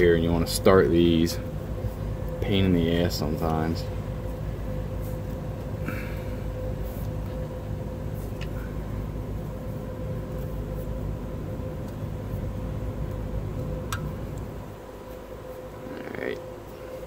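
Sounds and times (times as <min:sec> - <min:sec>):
constant hum: 0:00.0 - 0:17.0
low mechanical drone: 0:00.0 - 0:17.0.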